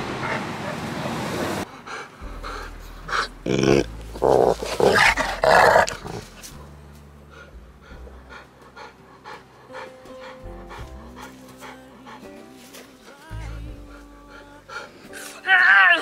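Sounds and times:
dogs growling: 1.4 - 6.6
dog panting: 1.6 - 3.6, 7.3 - 15.2.

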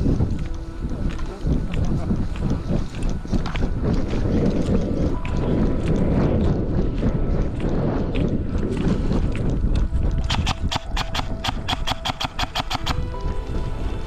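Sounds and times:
wind buffeting microphone: 0.0 - 14.0
fast sharp clicks: 10.1 - 13.0.

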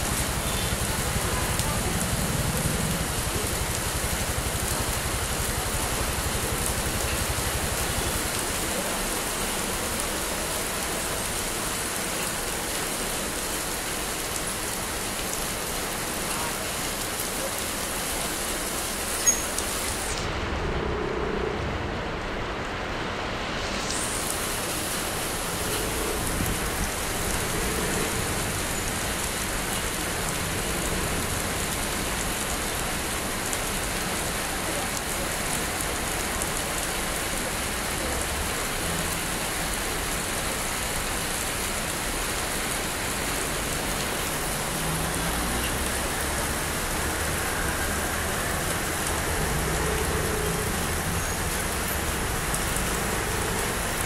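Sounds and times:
rain on wet pavement: 0.0 - 20.4, 22.2 - 54.0.

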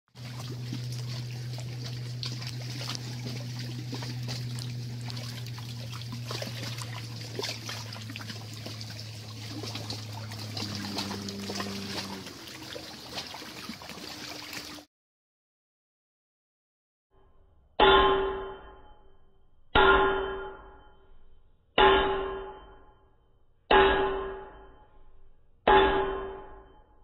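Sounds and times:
water trickling: 0.1 - 14.9
low steady hum: 0.2 - 14.8.

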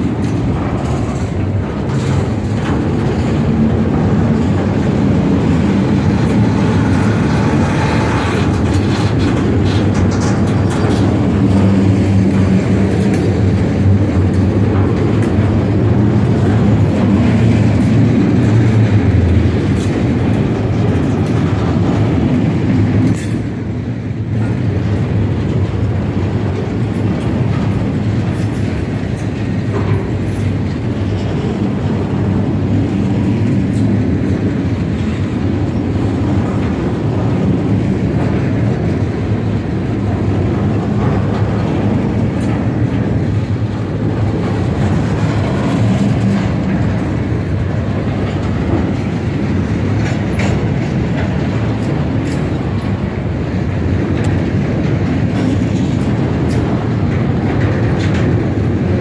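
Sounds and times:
freight train rumbling past: 0.0 - 59.0.

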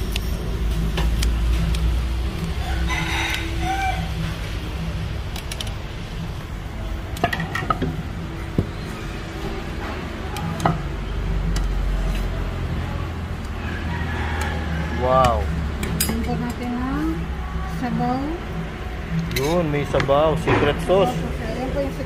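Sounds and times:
low rumble of traffic: 0.0 - 22.0
dishes and utensils clinking: 7.2 - 8.7, 15.8 - 16.6, 19.2 - 19.7.

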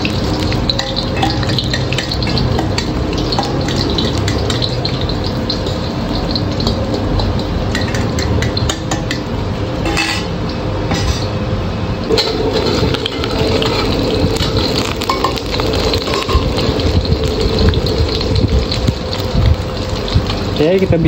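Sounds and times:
egg sizzling in hot oil: 0.0 - 10.9, 12.0 - 21.0
ladle clinking against wok: 0.2 - 5.8, 6.6 - 11.4, 12.1 - 16.8.

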